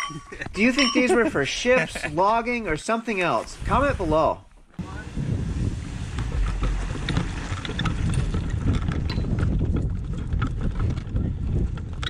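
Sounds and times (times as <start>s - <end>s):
wind buffeting microphone: 3.4s - 12.0s.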